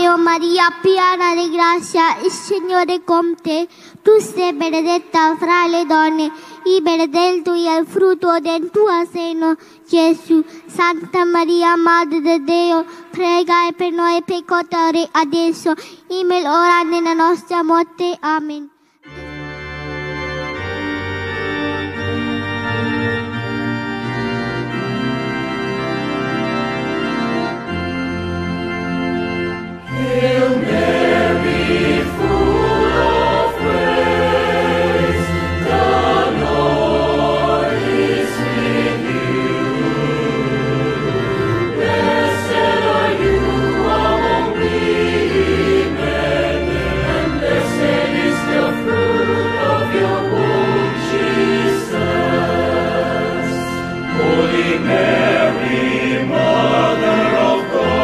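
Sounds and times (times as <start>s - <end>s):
organ playing slow chords: 5.2s - 7.1s, 18.8s - 58.0s
choir singing: 29.8s - 58.0s.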